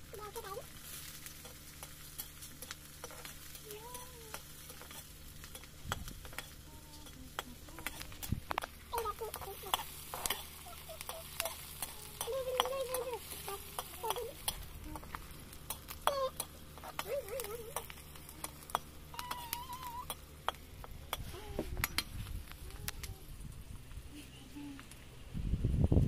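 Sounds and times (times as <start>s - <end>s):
food sizzling: 0.0s - 21.5s
metal spoon scraping a wok: 0.8s - 3.6s, 4.3s - 8.4s, 9.0s - 22.1s.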